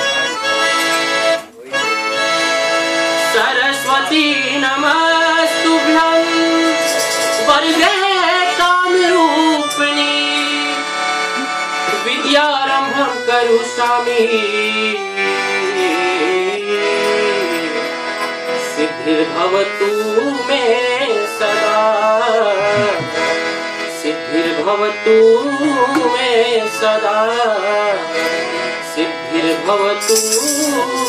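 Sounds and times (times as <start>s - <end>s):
harmonium chords: 0.0s - 31.0s
man singing: 3.2s - 31.0s
dholak drum beat: 22.6s - 23.3s.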